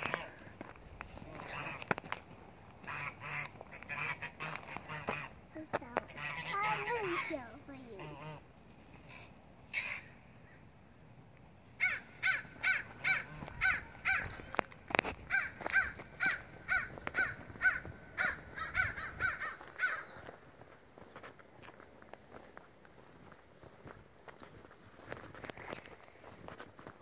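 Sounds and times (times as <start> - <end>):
geese honking: 0.0 - 0.6, 1.2 - 2.2, 2.8 - 10.6, 11.8 - 14.6.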